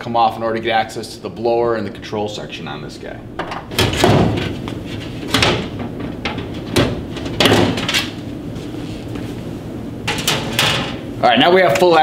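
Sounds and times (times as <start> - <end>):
sheet metal door clanking: 3.4 - 4.6, 5.2 - 8.2, 10.1 - 11.0.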